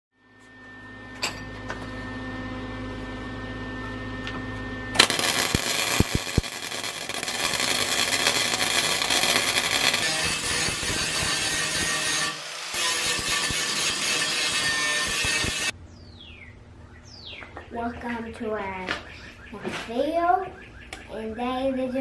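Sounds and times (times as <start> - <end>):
low electrical hum: 0.2 - 12.0, 13.0 - 22.0
arc welding crackling hiss: 5.0 - 15.7.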